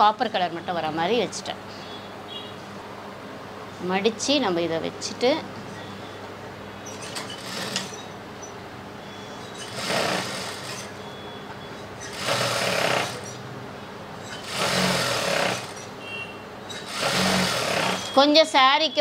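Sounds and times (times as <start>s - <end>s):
sewing machine stitching: 6.9s - 8.0s, 9.6s - 11.0s, 12.0s - 13.4s, 14.3s - 15.9s, 16.7s - 18.2s.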